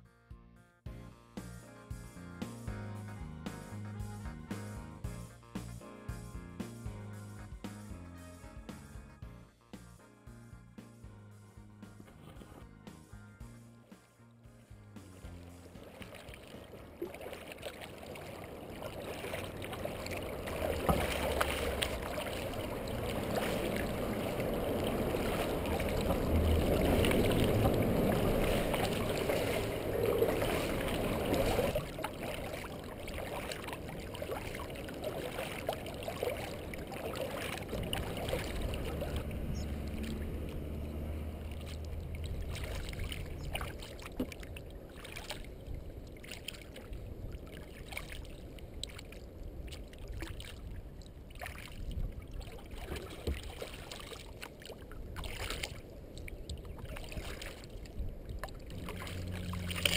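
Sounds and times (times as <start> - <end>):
paddle splashing: 12.0 - 12.7, 13.9 - 59.9
water rushing along hull: 13.9 - 59.9
water drips: 15.0 - 59.9.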